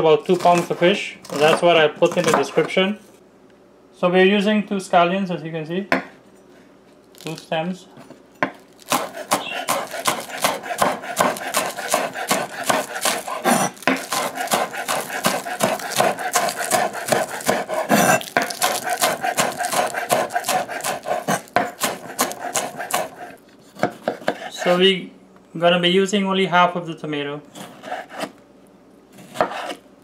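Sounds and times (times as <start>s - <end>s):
knife chopping on wooden board: 0.3s - 2.7s, 8.4s - 24.5s, 29.2s - 29.8s.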